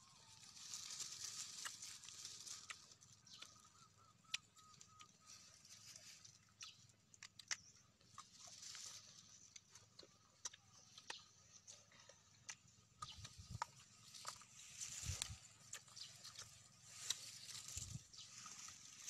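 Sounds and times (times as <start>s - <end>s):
teeth crunching raw mango: 6.4s - 8.7s, 9.3s - 17.4s.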